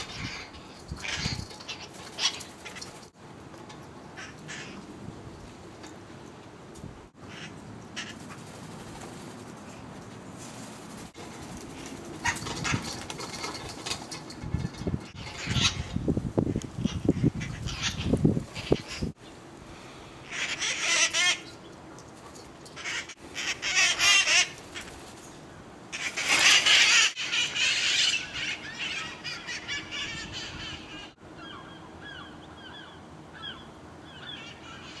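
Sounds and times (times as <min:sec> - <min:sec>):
parakeets screeching: 0:00.0 - 0:03.1, 0:12.1 - 0:13.7, 0:14.6 - 0:16.0, 0:16.8 - 0:19.2, 0:20.2 - 0:21.6, 0:22.7 - 0:25.0, 0:25.9 - 0:35.0
parakeets chirping: 0:15.1 - 0:16.0, 0:16.8 - 0:19.1.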